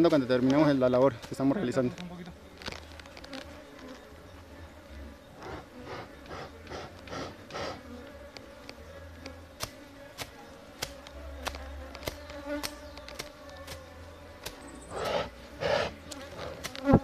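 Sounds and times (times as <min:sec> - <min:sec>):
bees buzzing: 0:01.6 - 0:17.0
machete cutting grass: 0:09.6 - 0:17.0.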